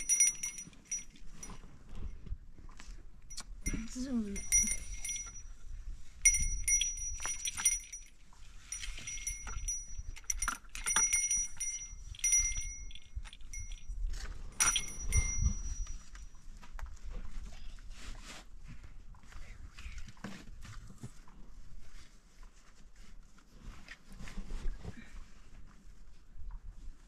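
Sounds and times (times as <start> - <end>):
livestock bells ringing: 0.0 - 1.6, 3.3 - 5.6, 6.2 - 14.0, 14.6 - 16.2.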